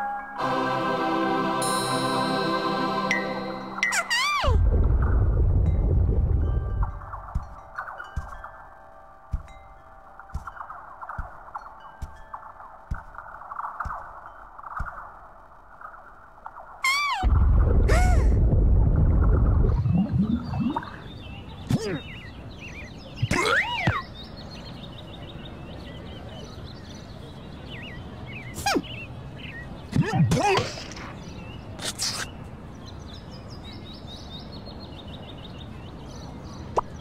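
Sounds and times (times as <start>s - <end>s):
birds chirping: 2.5s - 37.0s
sliding cartoon vocal squeaks: 3.9s - 4.6s, 16.8s - 17.3s
loud low rumble: 4.5s - 7.3s, 17.2s - 21.1s.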